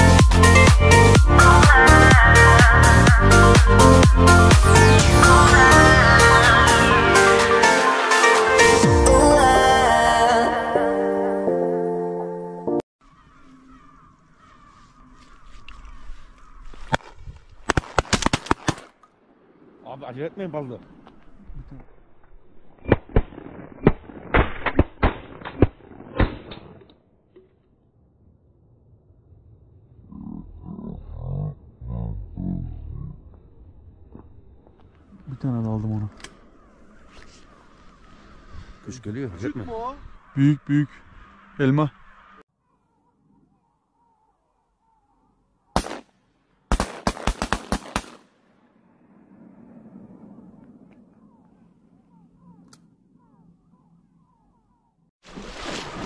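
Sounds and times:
shotgun fire: 45.8s - 48.4s.

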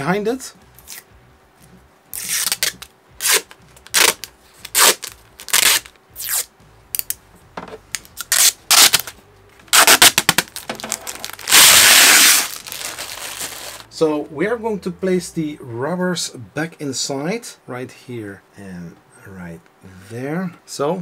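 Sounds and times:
plastic film rubbing scrapes: 2.1s - 6.5s, 8.2s - 13.8s
plastic film ripping: 2.1s - 7.1s, 7.9s - 13.9s
plastic film crackling: 2.2s - 6.5s, 7.9s - 13.9s.

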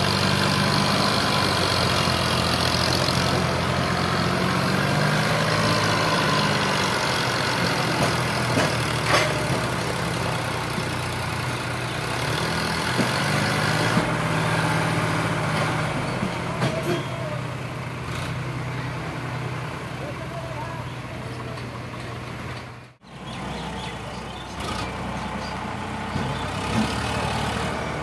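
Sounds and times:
diesel engines running: 0.0s - 28.0s.

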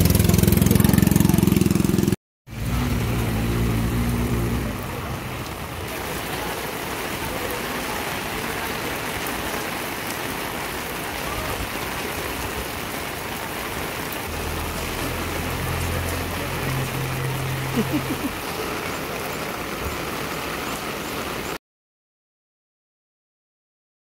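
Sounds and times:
heavy rain hiss: 2.5s - 21.6s
car engine running: 14.3s - 18.3s.

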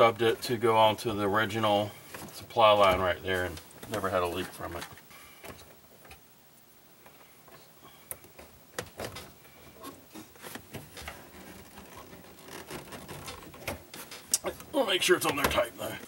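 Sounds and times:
small clicks and light knocks: 4.7s - 6.2s.

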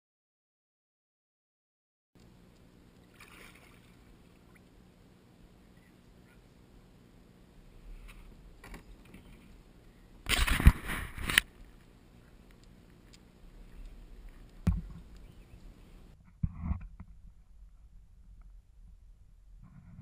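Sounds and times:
scraping rustle of handled camera: 10.3s - 11.5s.

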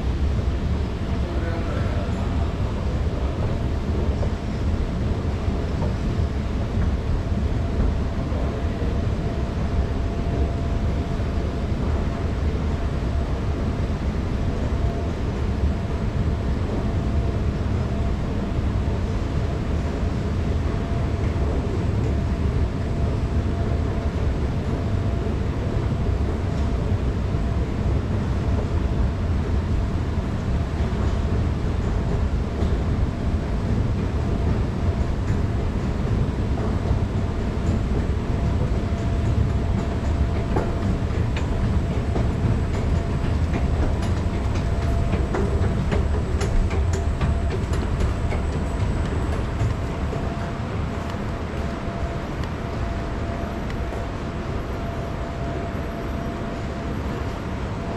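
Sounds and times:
escalator low rumble: 0.0s - 57.9s.

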